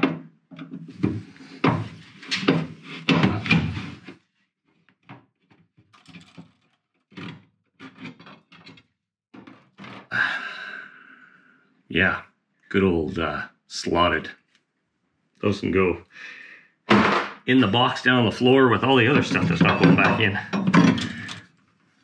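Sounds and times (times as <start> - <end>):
metal fasteners clanking and rattling: 5.9 - 10.1, 19.0 - 21.5.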